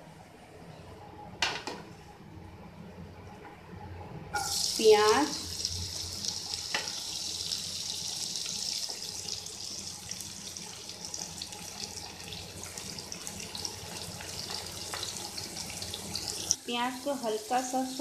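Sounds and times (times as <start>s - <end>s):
onions sizzling in hot oil: 4.4s - 18.0s.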